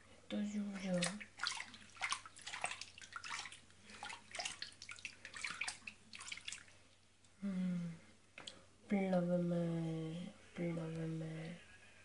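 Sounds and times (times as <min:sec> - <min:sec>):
bathwater splashing and trickling: 0:00.6 - 0:07.1.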